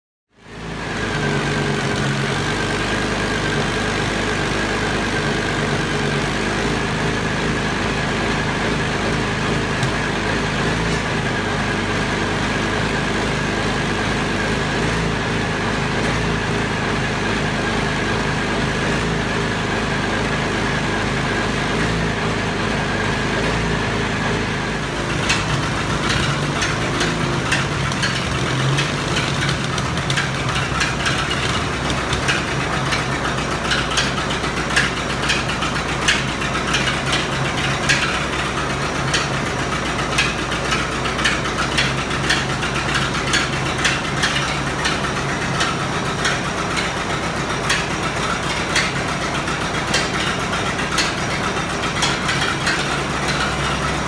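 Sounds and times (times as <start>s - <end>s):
diesel engine idling: 0.4s - 54.0s
fast metallic clicking and rattling: 25.1s - 54.0s.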